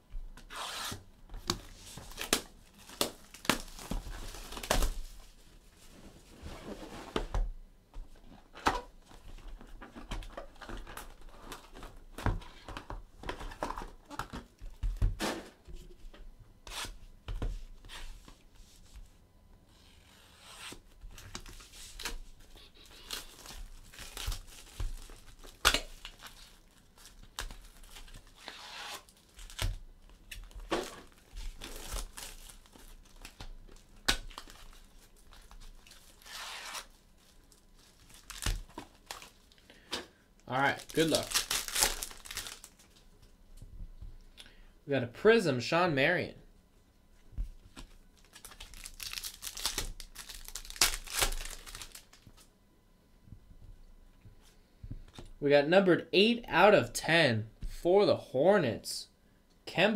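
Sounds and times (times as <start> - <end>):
plastic wrapping tearing and crinkling: 1.6 - 5.2, 21.1 - 39.6, 40.5 - 43.0, 47.8 - 52.4.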